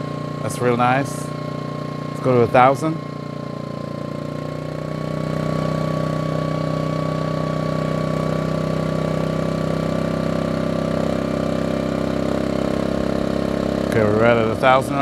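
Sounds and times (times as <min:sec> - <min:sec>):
generator engine running: 0:00.0 - 0:15.0.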